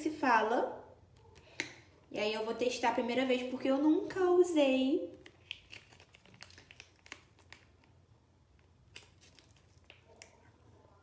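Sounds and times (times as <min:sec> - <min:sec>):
plastic sachet crinkling: 0:05.1 - 0:10.4.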